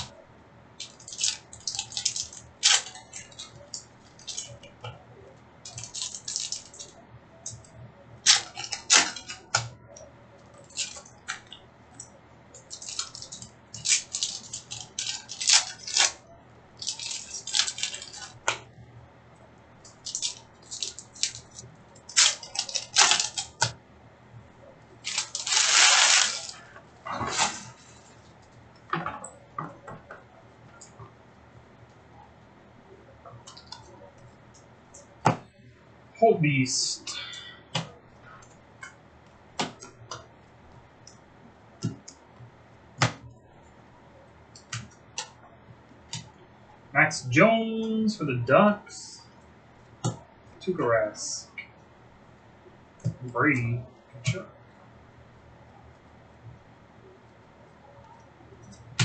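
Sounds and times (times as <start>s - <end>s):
card pack wrappers crinkling: 0.8s - 4.6s, 5.7s - 7.0s, 8.2s - 9.6s, 12.6s - 16.2s, 16.8s - 18.5s, 19.9s - 23.7s, 25.0s - 26.6s, 27.2s - 28.2s.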